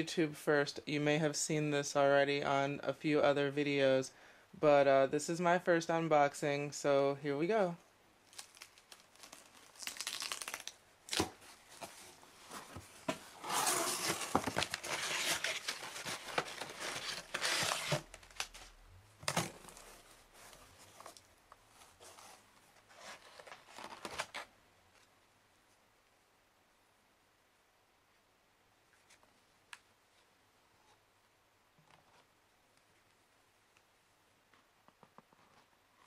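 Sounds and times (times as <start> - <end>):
packing paper crinkling: 8.2 - 24.5
cardboard box tearing: 8.4 - 21.2, 21.9 - 24.5.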